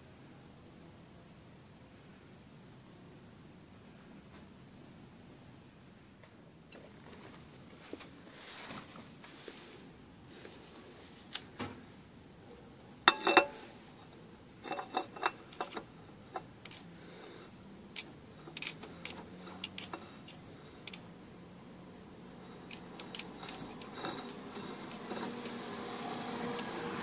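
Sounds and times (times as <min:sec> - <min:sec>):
metallic clicks taps and scrapes: 0:13.1 - 0:16.8, 0:18.0 - 0:21.1, 0:22.6 - 0:25.7.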